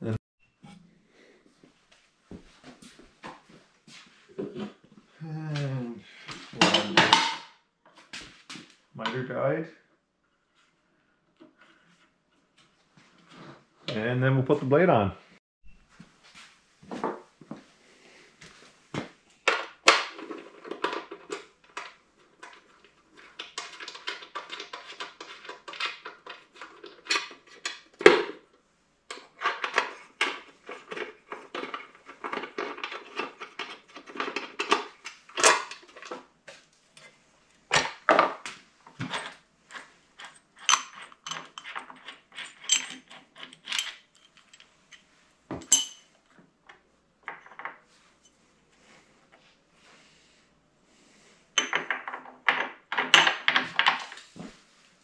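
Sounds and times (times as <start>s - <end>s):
metal parts clinking and rattling: 29.4s - 36.1s, 39.0s - 46.2s.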